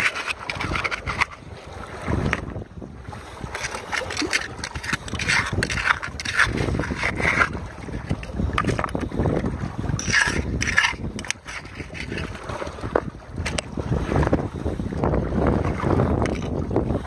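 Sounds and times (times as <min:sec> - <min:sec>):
trowel scraping gravel: 0:00.0 - 0:01.4, 0:03.5 - 0:09.0, 0:10.0 - 0:12.4.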